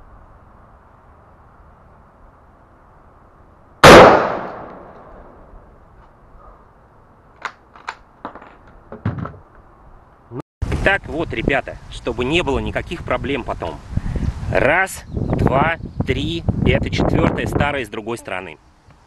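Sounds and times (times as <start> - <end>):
rifle shot with echo: 3.8 - 5.3.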